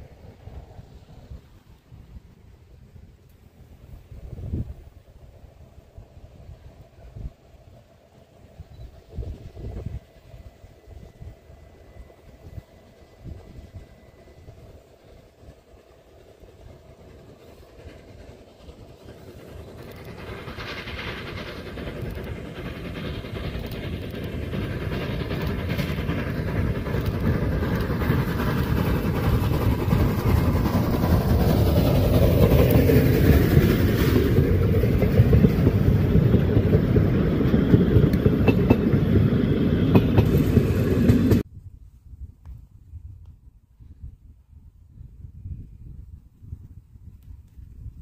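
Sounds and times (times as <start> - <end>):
steam locomotive passing: 0.0 - 41.5.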